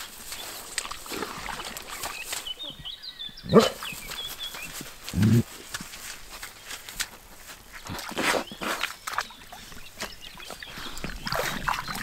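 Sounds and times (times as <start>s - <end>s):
dog snorting: 3.5s - 3.9s, 5.1s - 5.5s.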